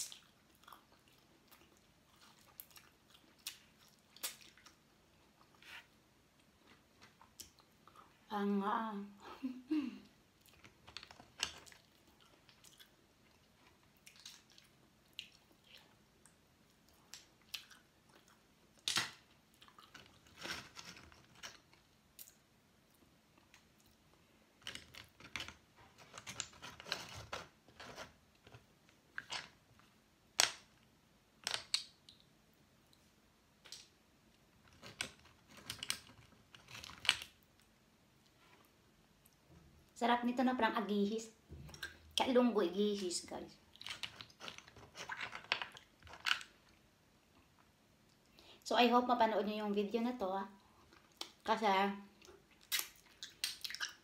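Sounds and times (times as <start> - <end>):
chewing seafood with crunches: 0.0 - 4.8, 19.5 - 20.3.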